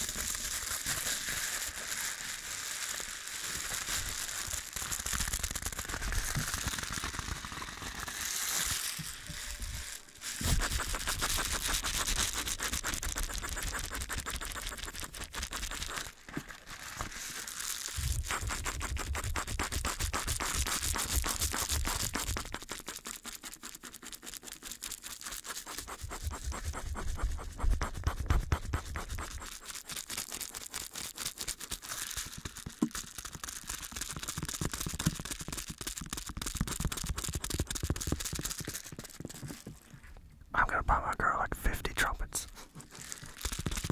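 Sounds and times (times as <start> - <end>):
brush strokes on microphone: 6.2 - 16.2, 18.0 - 31.2.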